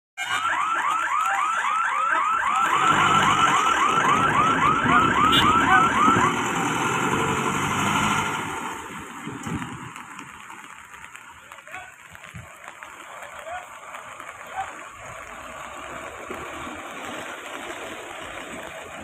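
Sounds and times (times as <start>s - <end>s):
electronic warning siren whoops: 0.2s - 6.7s
bus engine running: 4.0s - 11.8s.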